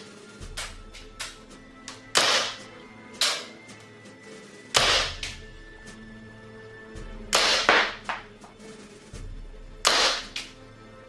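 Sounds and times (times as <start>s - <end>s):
background music: 0.0s - 11.0s
airsoft pistol pops: 2.2s - 3.5s, 4.8s - 5.4s, 7.4s - 8.2s, 9.9s - 10.5s.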